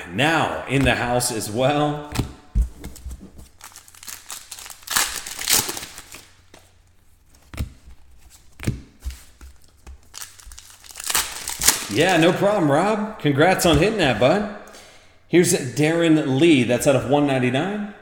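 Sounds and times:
card pack wrappers crinkling: 2.8s - 6.8s, 9.1s - 12.3s.

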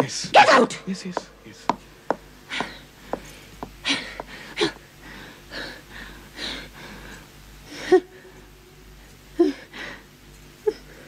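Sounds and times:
woman breathing heavily: 2.4s - 8.4s, 9.0s - 11.0s.

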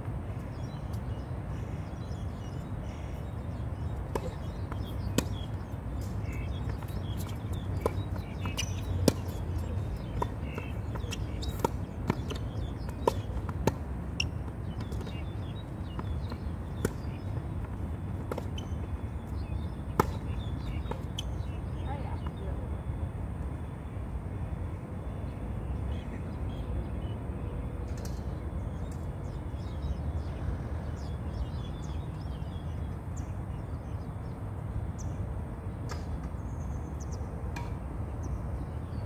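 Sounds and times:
tennis balls struck by rackets: 4.0s - 18.8s, 19.8s - 21.3s, 37.5s - 37.8s
tennis balls bouncing on hard court: 4.0s - 21.3s.

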